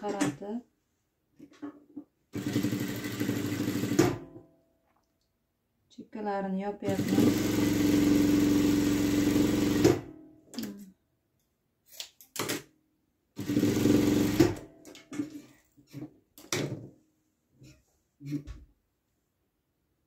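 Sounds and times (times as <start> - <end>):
sewing machine stitching: 2.3 - 4.2, 6.9 - 10.1, 13.4 - 14.7.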